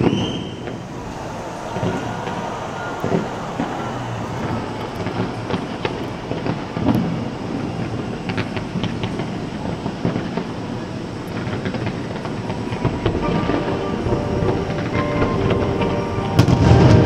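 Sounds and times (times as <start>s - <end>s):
fireworks crackling and popping: 0.0s - 17.0s
loud firework bang: 16.4s - 17.0s.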